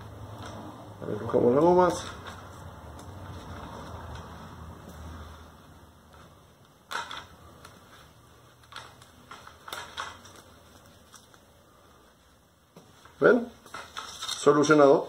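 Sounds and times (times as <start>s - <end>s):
handling clicks and rustles: 6.1s - 11.8s, 12.7s - 14.9s.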